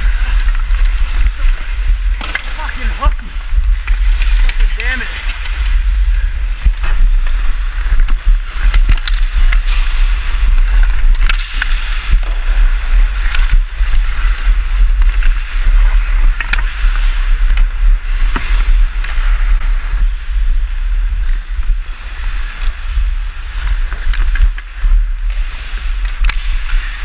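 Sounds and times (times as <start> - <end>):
skate blades scraping on ice: 0.0 - 27.0
wind rumble on microphone: 0.0 - 27.0
stick clicking on puck: 11.0 - 12.4.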